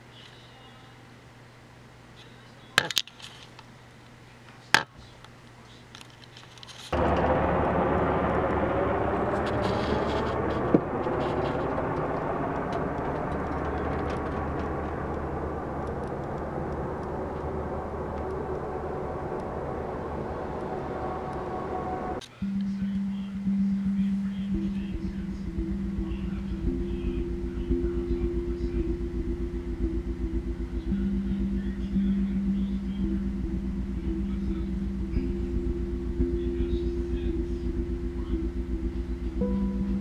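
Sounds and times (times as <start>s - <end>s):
helicopters flying over: 7.0s - 22.2s.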